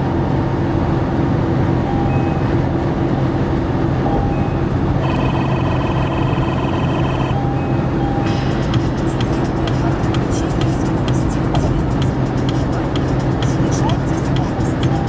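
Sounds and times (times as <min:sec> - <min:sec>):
tyre and engine drone: 0:00.0 - 0:15.0
high buzzing tone: 0:04.2 - 0:12.3.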